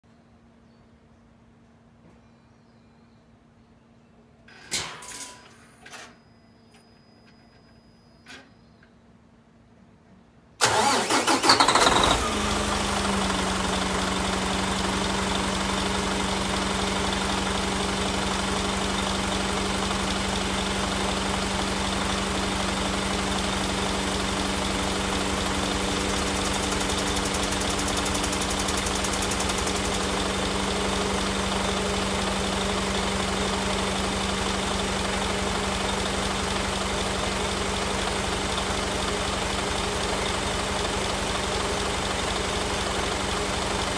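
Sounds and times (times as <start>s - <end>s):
diesel engine starter cranking: 10.6s - 14.6s
diesel engine idling: 10.6s - 43.9s.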